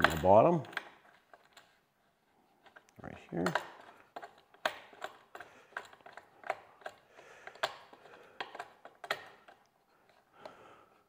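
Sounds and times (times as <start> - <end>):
metallic clicking and scraping: 0.0 - 1.8, 2.6 - 10.3.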